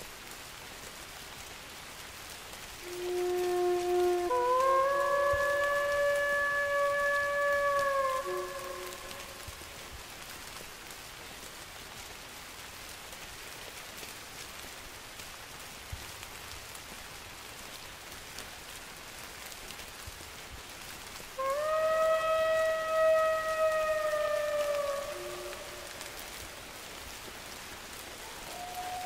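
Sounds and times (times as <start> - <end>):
steady rain: 0.0 - 29.0
wolf howling: 2.8 - 9.6, 21.4 - 26.8, 28.2 - 29.0.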